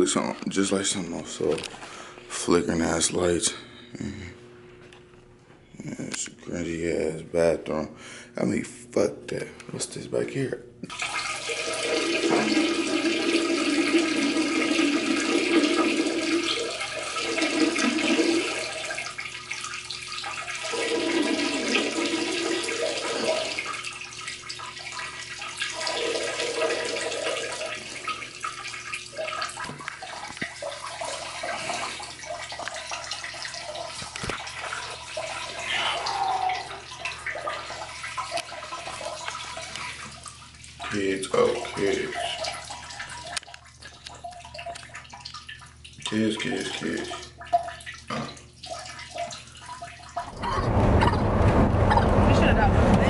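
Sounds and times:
water rushing in plumbing: 0:10.9 - 0:53.0.

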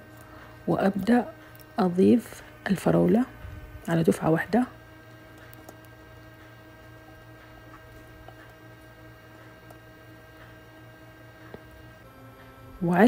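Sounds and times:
faint steady hum: 0:00.0 - 0:13.0
spatula squishing strawberries: 0:04.8 - 0:11.7.

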